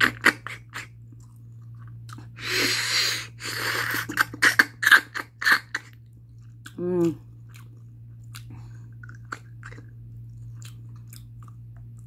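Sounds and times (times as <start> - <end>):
wet chewing clicks: 5.8 - 12.0.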